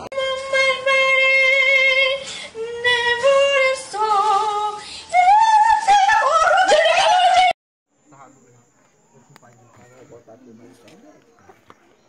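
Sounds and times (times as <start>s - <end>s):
girl singing loudly: 0.1s - 7.6s.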